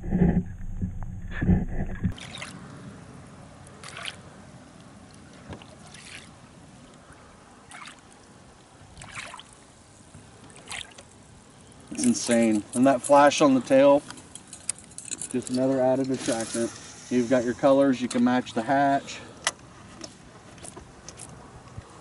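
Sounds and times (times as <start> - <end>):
lure splashing in water: 2.1 - 2.6, 3.8 - 4.2, 5.6 - 6.4, 7.7 - 8.3, 9.0 - 9.6, 10.5 - 11.1.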